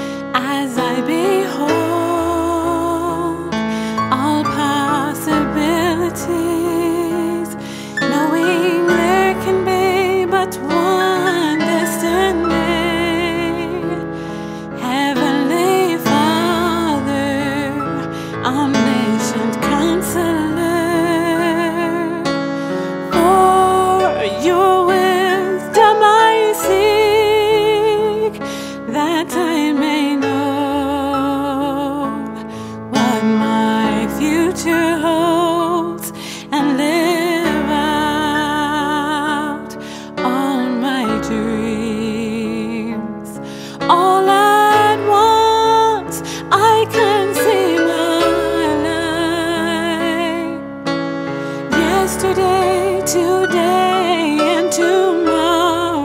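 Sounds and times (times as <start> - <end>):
person singing with vibrato: 0.0 - 50.7, 51.5 - 56.0
melody with vibrato: 18.7 - 29.6, 51.7 - 56.0
sustained chords: 23.1 - 27.9.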